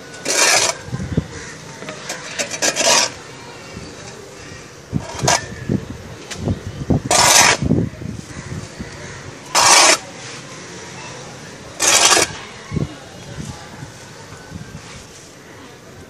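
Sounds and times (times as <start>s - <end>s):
hand trowel scraping soil: 0.0s - 3.7s, 5.0s - 5.5s, 7.0s - 7.7s, 9.0s - 10.9s, 11.5s - 12.7s.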